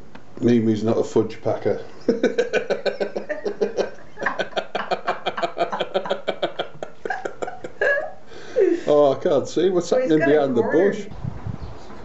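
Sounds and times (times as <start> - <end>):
people laughing: 1.8 - 9.2.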